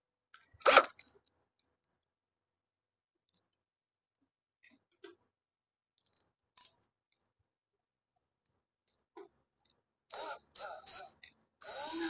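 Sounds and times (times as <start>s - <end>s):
power drill motor whirring: 10.1s - 12.0s.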